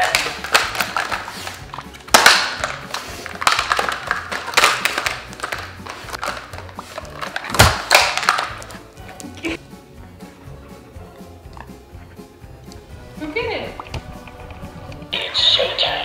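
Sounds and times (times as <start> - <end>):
plastic toy clattering on tile floor: 0.0 - 8.8.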